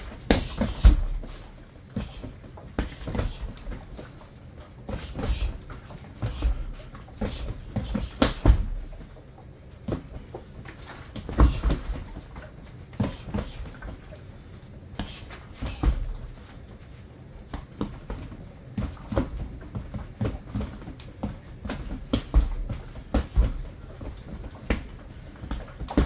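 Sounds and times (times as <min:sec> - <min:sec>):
punches thudding on rubber dummy: 0:00.0 - 0:04.0, 0:04.8 - 0:09.0, 0:11.1 - 0:12.2, 0:15.2 - 0:16.4, 0:17.6 - 0:26.0.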